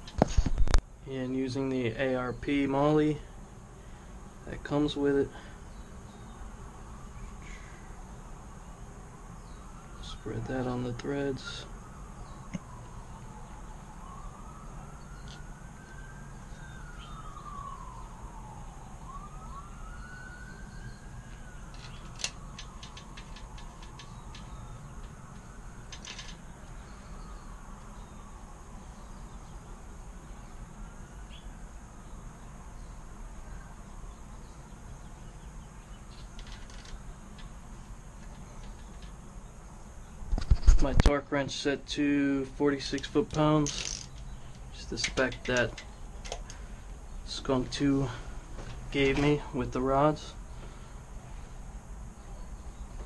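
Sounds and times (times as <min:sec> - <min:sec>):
faint wailing siren: 0:00.1 - 0:53.0
light clicks of parts handled: 0:21.3 - 0:26.4, 0:38.2 - 0:39.2, 0:42.8 - 0:46.6.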